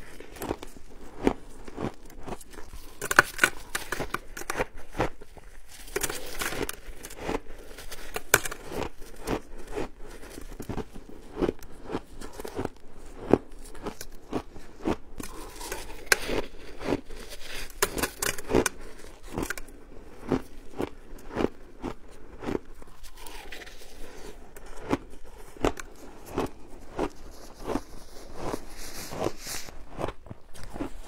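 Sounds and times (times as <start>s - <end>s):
crunching and chewing shaved ice: 0.0s - 31.0s.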